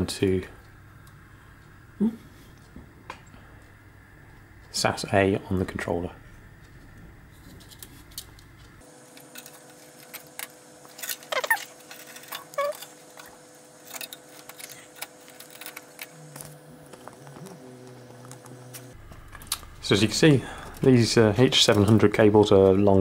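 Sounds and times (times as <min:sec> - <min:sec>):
short squeaks: 0:11.2 - 0:12.9.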